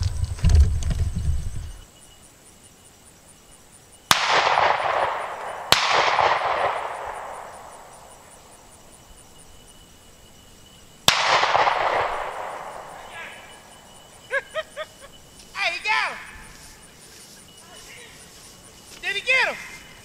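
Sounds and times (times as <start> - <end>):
shotgun shots echoing: 4.1 - 8.2, 11.0 - 13.9.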